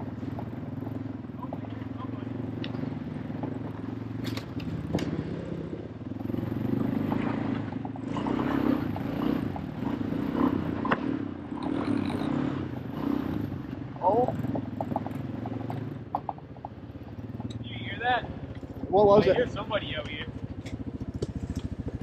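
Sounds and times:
small engine running: 17.2s - 22.0s.

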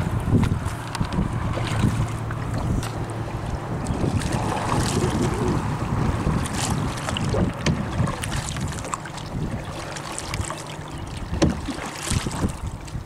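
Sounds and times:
paddle strokes in water: 0.0s - 13.0s
wind on microphone: 0.0s - 13.0s
water dripping off paddle: 6.4s - 13.0s.

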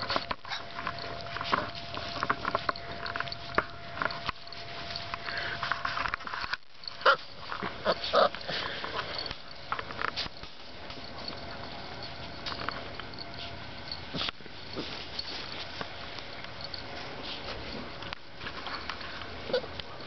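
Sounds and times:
puppies whimpering and yipping: 6.9s - 9.6s.

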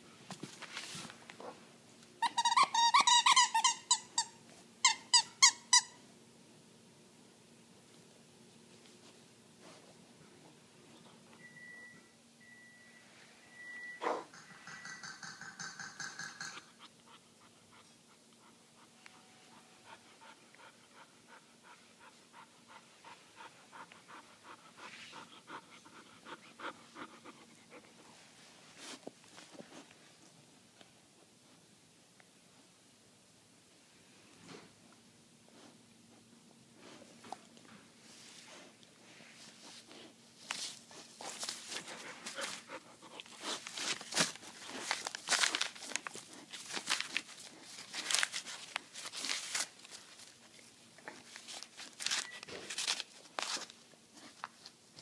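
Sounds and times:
squeaky toy squeaking: 2.2s - 6.0s
puppy panting: 16.6s - 28.2s, 40.8s - 44.9s.

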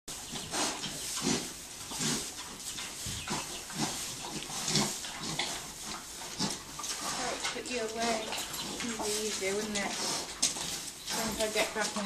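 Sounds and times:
pigs grunting: 0.2s - 11.6s
straw rustling: 0.2s - 12.0s.

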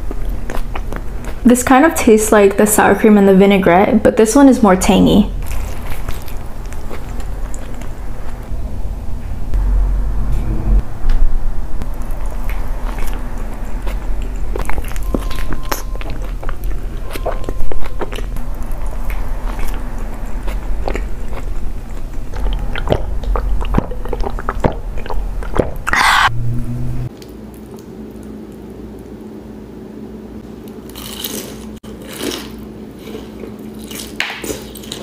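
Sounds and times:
close chewing with mouth clicks: 0.0s - 1.4s, 5.4s - 8.0s, 11.8s - 26.3s, 30.9s - 35.0s.

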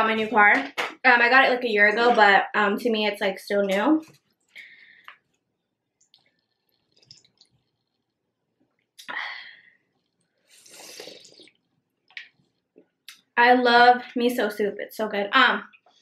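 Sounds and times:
soup slurping: 6.0s - 8.1s, 10.0s - 12.5s.

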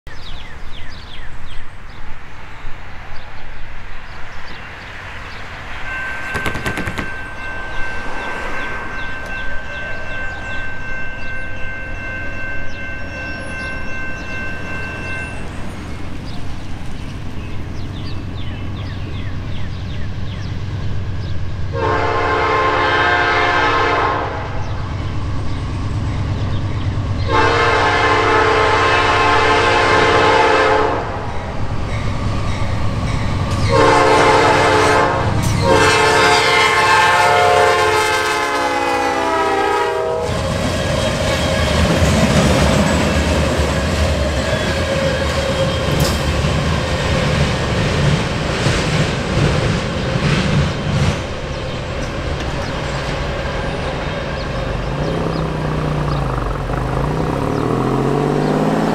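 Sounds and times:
train rumbling: 0.1s - 58.9s
locomotive horn blasts: 21.7s - 24.7s, 27.3s - 31.2s, 33.6s - 41.3s.

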